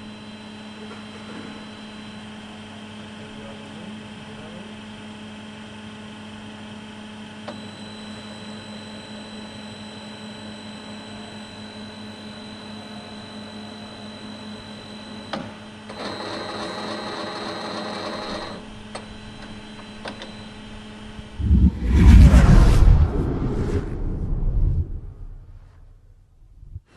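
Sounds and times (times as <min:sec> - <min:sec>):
loud whoosh: 0:21.2 - 0:26.8.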